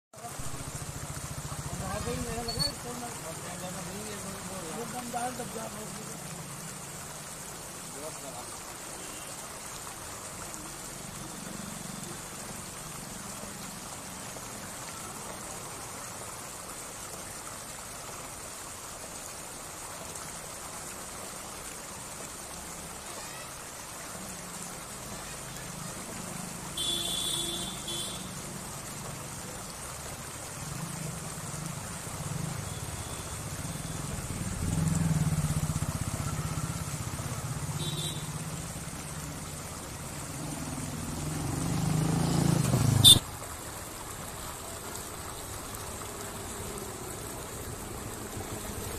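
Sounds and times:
water rushing over weir: 0:00.2 - 0:48.9
vehicle engine hum: 0:30.5 - 0:43.2, 0:44.2 - 0:48.9.

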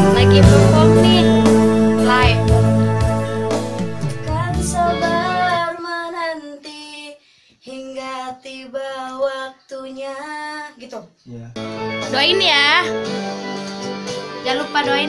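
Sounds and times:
girl singing alone: 0:00.0 - 0:02.4, 0:04.1 - 0:10.9
song with strong bass: 0:00.0 - 0:05.6.

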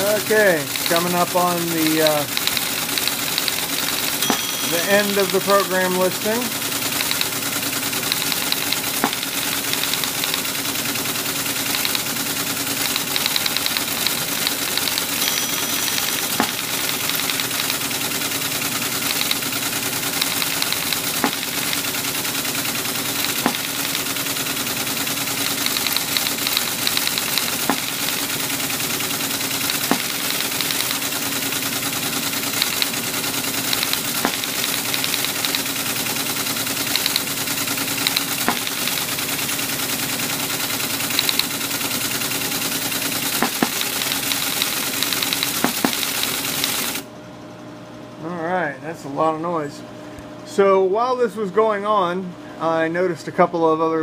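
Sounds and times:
teletype printer clattering: 0:00.0 - 0:47.0
motor hum: 0:00.0 - 0:48.5
sharp knocks: 0:23.4 - 0:23.8, 0:29.9 - 0:30.2, 0:43.4 - 0:43.9.

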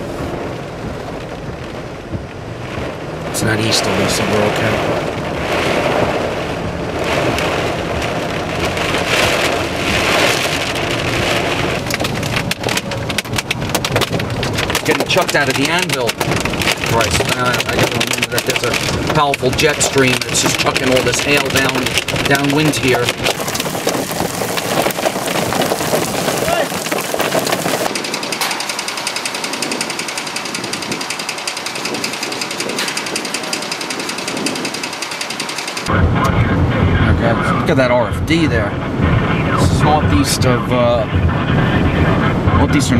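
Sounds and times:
heavy rain on car: 0:00.0 - 0:42.9
road noise: 0:00.0 - 0:42.9
steady rushing noise: 0:00.0 - 0:42.9
hailstones striking car: 0:01.2 - 0:35.9
rapid mechanical clatter: 0:08.7 - 0:35.9.

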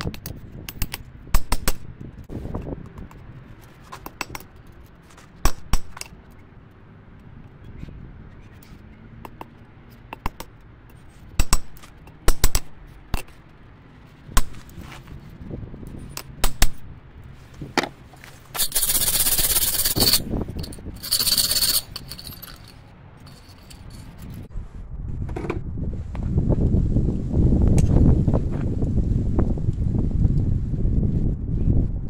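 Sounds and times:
wire brush scraping steel: 0:18.3 - 0:24.3.

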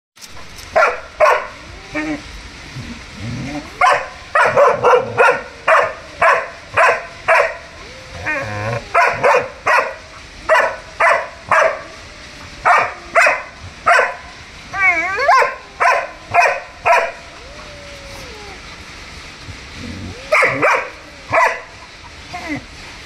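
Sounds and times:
dog barking loudly: 0:00.7 - 0:01.6, 0:03.6 - 0:07.9, 0:08.6 - 0:12.0, 0:12.6 - 0:14.4, 0:15.2 - 0:17.7, 0:20.1 - 0:22.1
dog wavering cry: 0:01.2 - 0:18.9, 0:19.7 - 0:22.8.

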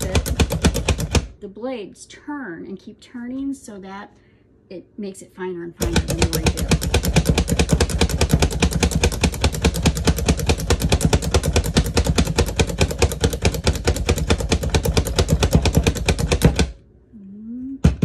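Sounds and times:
plunger food chopper clacking: 0:00.0 - 0:01.3, 0:05.8 - 0:16.7.

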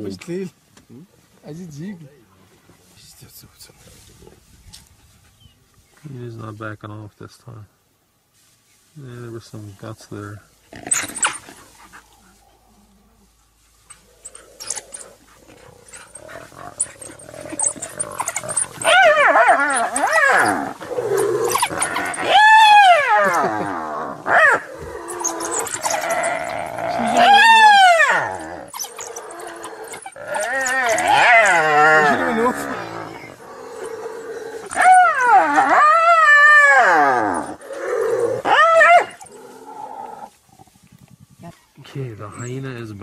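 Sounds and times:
wild dogs squealing and yelping: 0:10.6 - 0:41.4.

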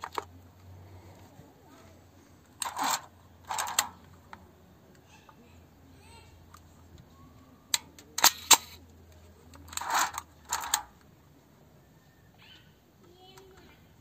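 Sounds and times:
noisy mechanical bursts: 0:02.6 - 0:04.1, 0:09.7 - 0:11.0
camera mechanism clicks: 0:07.8 - 0:08.8.

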